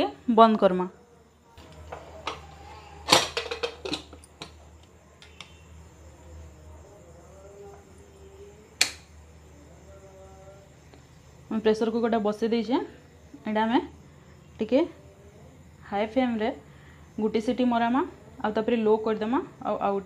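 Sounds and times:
metal lid clanks and knocks: 0:03.1 - 0:04.6
sharp click: 0:08.8 - 0:09.1.

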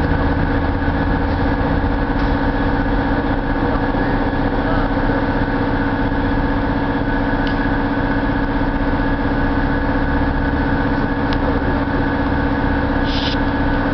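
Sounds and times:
locomotive electrical hum: 0:00.0 - 0:13.9.

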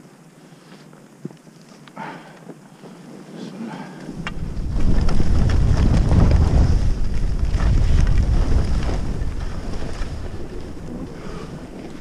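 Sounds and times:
wind buffeting microphone: 0:04.1 - 0:12.0.

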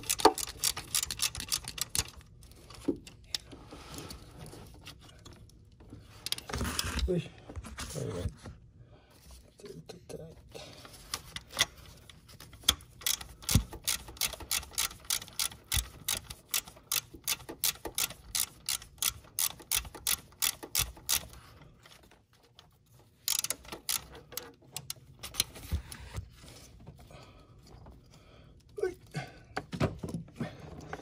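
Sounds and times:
ratchet wrench clicking: 0:00.0 - 0:02.2, 0:12.7 - 0:21.4, 0:23.3 - 0:25.5.

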